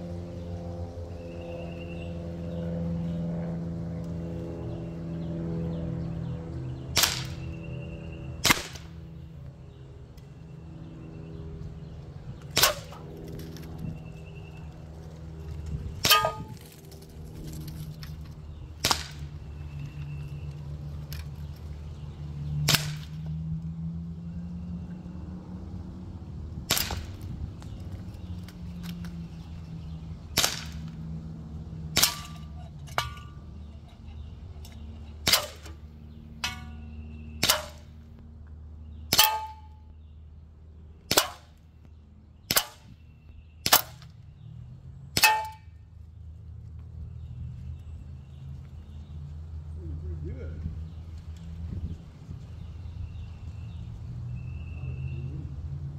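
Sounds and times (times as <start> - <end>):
air pistol shots: 6.9 - 7.5, 8.4 - 9.0, 12.5 - 13.0, 18.8 - 19.3, 22.6 - 23.2, 26.6 - 27.2, 30.3 - 30.9, 31.9 - 32.4, 35.2 - 35.8, 37.4 - 38.0, 39.1 - 39.7, 41.1 - 41.5, 42.5 - 42.9, 43.6 - 44.1.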